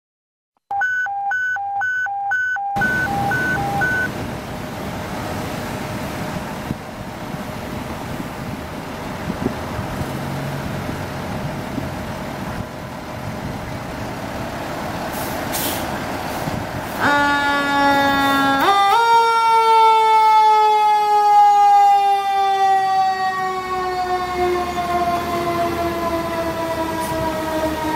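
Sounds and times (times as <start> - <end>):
electronic beeping: 0.7 - 4.1
mechanical siren: 0.7 - 4.1, 17.0 - 27.9
air hiss: 15.1 - 15.9.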